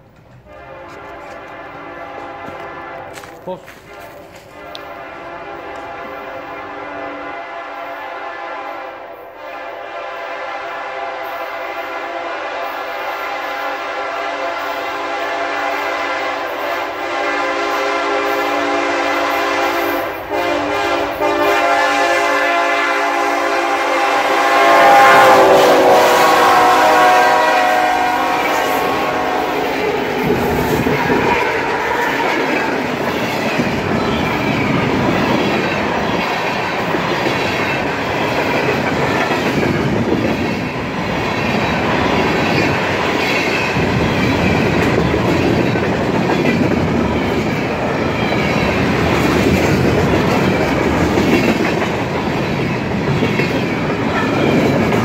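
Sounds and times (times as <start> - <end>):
train air horn blasts: 0.4 - 32.5.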